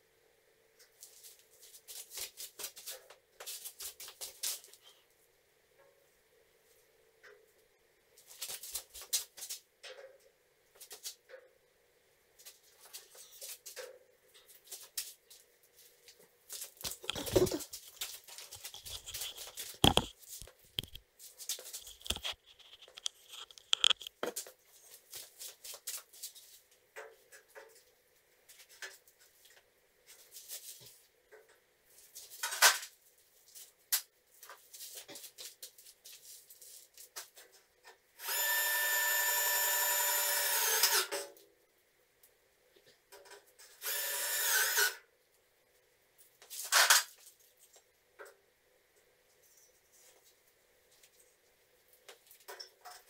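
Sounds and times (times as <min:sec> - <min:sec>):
metal studs clicking and scraping: 0:21.8 - 0:24.2.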